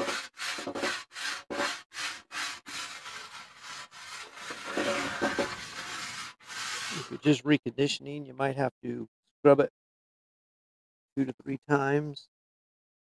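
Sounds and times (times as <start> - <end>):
grill stone scrubbing steel griddle: 0.0 - 7.2.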